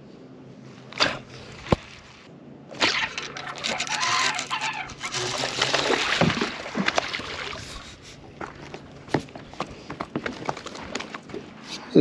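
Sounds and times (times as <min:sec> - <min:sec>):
fish splashing at water surface: 0:04.2 - 0:08.6.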